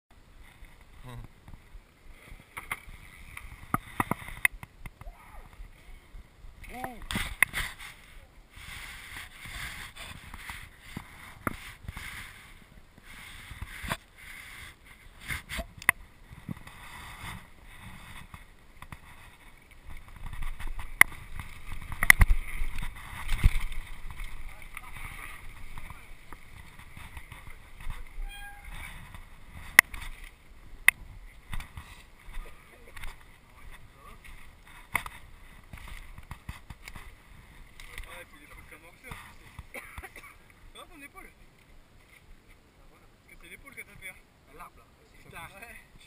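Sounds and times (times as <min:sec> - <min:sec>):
tyre and wind rushing: 0:00.2 - 0:37.8
bike rolling on dirt trail: 0:00.2 - 0:39.8
bike knocking and rattling: 0:15.3 - 0:37.1.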